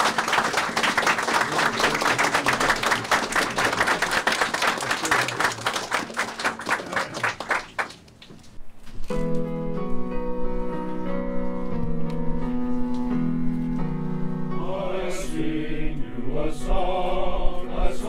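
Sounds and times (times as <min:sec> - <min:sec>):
small group applauding: 0:00.0 - 0:08.6.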